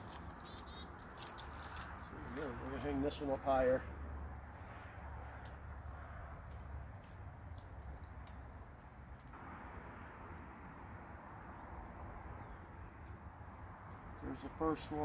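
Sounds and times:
bird chirps: 0:00.0 - 0:02.2
light clicks and rustling: 0:00.0 - 0:03.6.

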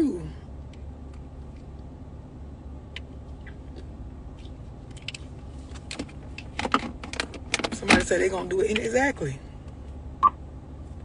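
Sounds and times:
car interior hum: 0:00.0 - 0:11.0.

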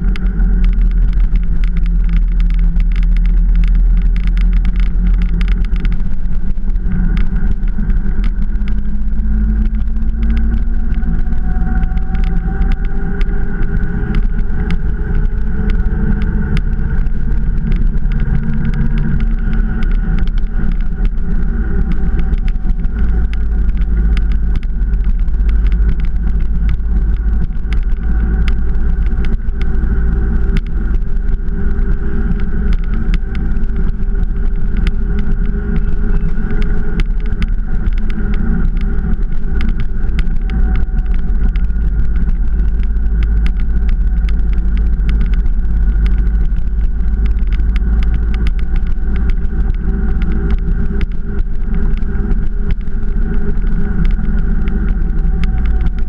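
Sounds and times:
motorcycle engine running: 0:00.0 - 0:56.0
wind noise on microphone: 0:00.0 - 0:56.0.

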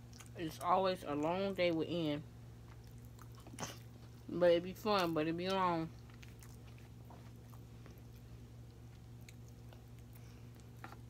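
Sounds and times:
low electrical hum: 0:00.0 - 0:11.0
soft chewing mouth clicks: 0:02.6 - 0:04.2, 0:05.9 - 0:11.0.

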